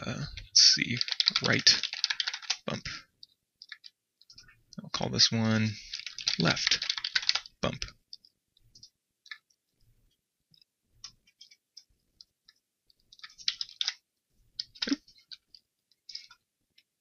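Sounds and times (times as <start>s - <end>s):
computer keyboard clicks: 1.0s - 2.6s, 5.9s - 7.5s, 13.1s - 14.0s.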